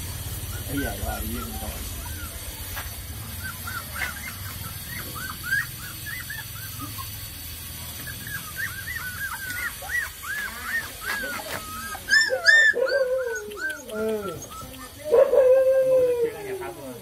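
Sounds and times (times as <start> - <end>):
puppies whining and yelping: 0.3 - 16.8.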